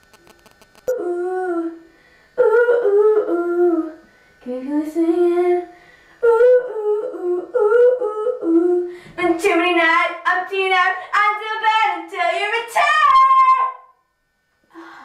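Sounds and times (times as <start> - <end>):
girl singing high notes: 9.2 - 13.9.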